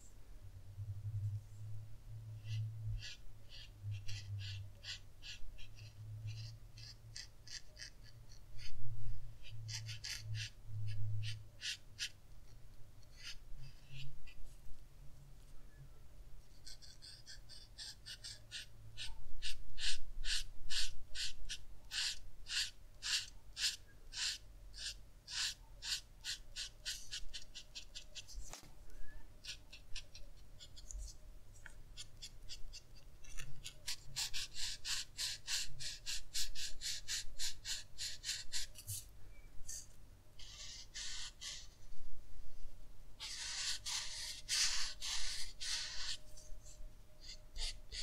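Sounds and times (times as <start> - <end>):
marker scratching across paper: 2.4 - 8.8, 9.4 - 12.2, 13.0 - 14.6, 16.5 - 28.7, 29.4 - 39.1, 39.7 - 41.9, 43.2 - 48.0.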